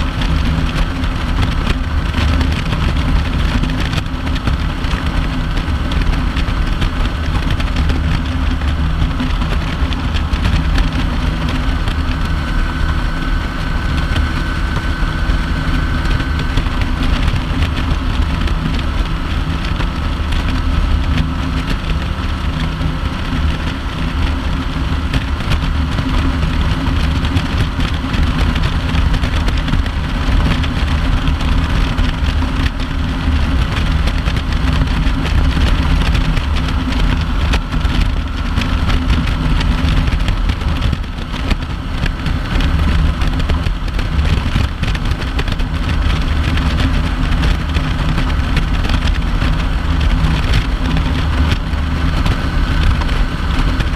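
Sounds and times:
motorcycle engine cruising: 0.0s - 53.9s
wind rush and road noise: 0.0s - 53.9s.

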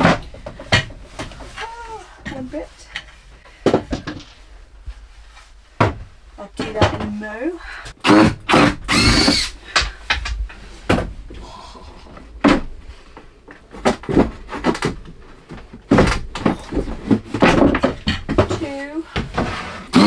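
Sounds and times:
wooden knocks and clunks: 0.0s - 5.0s, 5.7s - 7.4s, 9.7s - 11.4s, 12.4s - 19.8s
wood squeaking creak: 8.0s - 9.6s.

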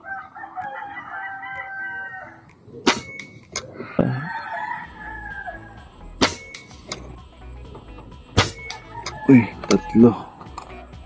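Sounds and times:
rooster crowing: 0.0s - 2.5s, 3.6s - 6.1s, 8.5s - 11.0s
air rifle shots: 2.8s - 3.7s, 6.2s - 7.1s, 8.3s - 8.9s.

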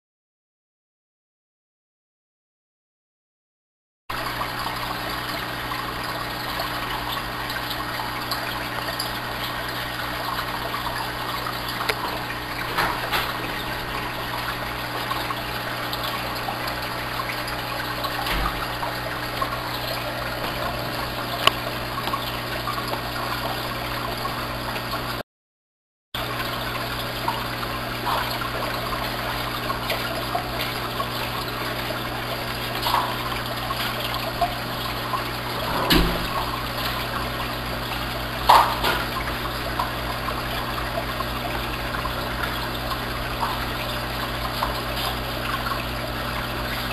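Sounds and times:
air bubbles in aquarium: 4.1s - 25.2s, 26.2s - 46.9s
low pump hum: 4.1s - 25.2s, 26.2s - 46.9s
water trickling: 4.1s - 25.2s, 26.2s - 46.9s.

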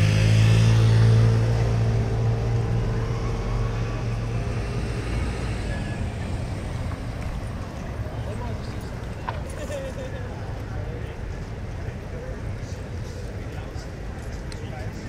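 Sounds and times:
boat engine humming: 0.0s - 9.5s.

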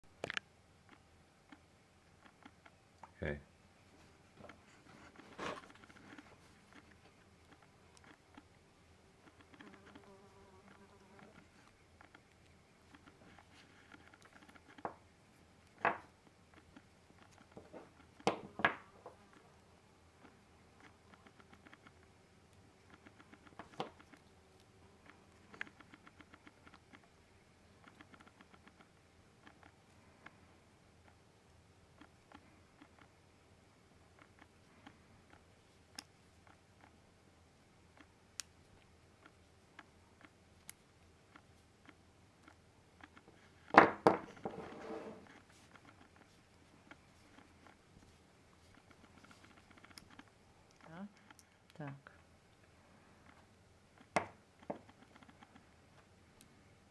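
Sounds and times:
faint metal clicks: 45.3s - 56.6s.

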